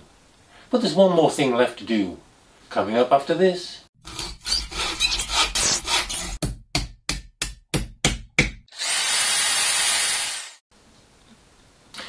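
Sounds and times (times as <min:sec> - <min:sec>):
rasping strokes: 0:04.0 - 0:06.4.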